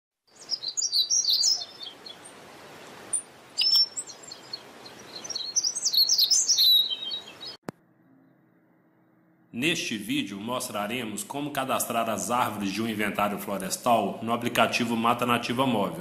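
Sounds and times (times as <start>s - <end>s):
birds chirping: 0.3s - 9.3s
outdoor ambience hiss: 0.3s - 16.0s.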